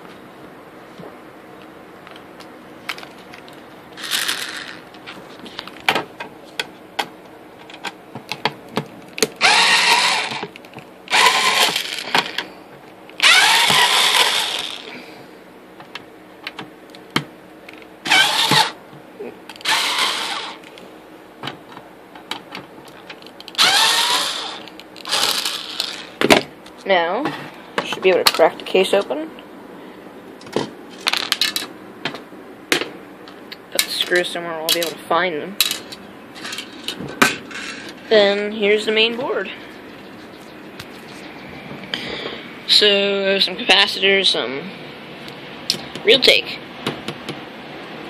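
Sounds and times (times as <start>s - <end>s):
screwdriver grinding with whine: 4.0s - 4.9s, 9.4s - 12.4s, 13.2s - 14.9s, 18.0s - 18.8s, 19.5s - 20.7s, 23.5s - 26.2s.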